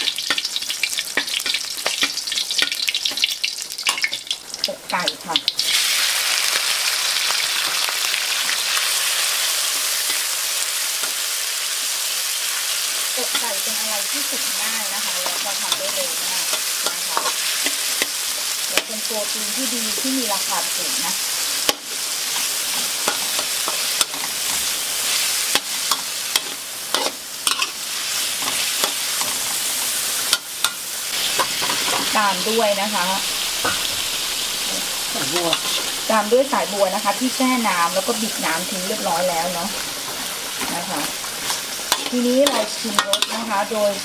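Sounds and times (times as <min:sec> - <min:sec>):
chicken sizzling in hot oil: 0:00.0 - 0:44.0
metal spatula scraping a wok: 0:13.2 - 0:19.1, 0:21.6 - 0:33.0, 0:33.6 - 0:36.2, 0:36.8 - 0:44.0.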